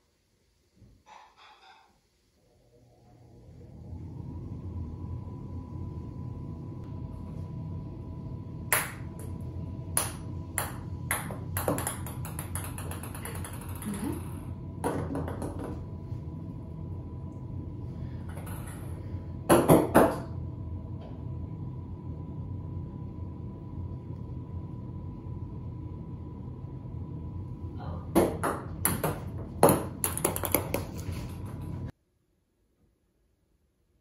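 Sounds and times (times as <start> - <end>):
small hard ball bouncing: 10.0 - 15.8, 18.3 - 18.9, 28.1 - 31.6.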